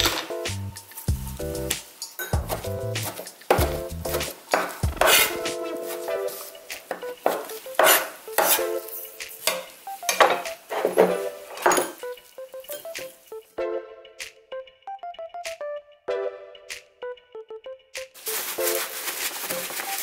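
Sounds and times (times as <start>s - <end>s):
knife chopping on wooden board: 2.4s - 5.5s, 6.9s - 8.6s.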